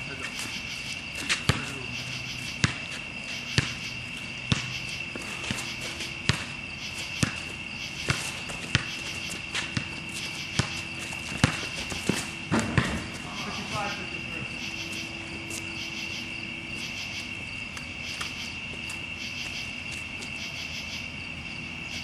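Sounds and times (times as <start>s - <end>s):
basketball bouncing: 1.1s - 13.4s.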